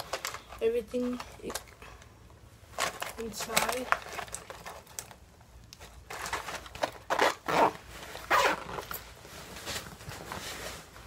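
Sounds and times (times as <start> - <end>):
rustling of handled things: 0.0 - 11.0
zipper being pulled: 6.8 - 9.0.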